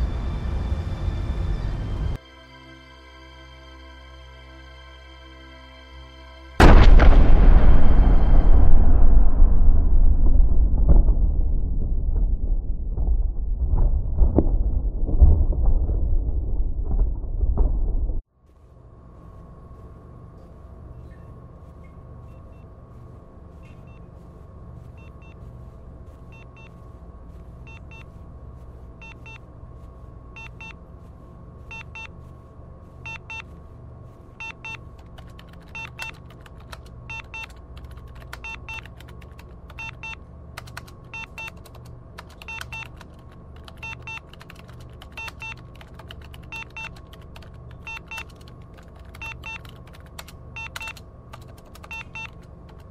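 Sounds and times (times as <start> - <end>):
low electronic drone: 0.0 - 18.2
sharp clicky blips: 49.2 - 51.0, 51.8 - 52.5.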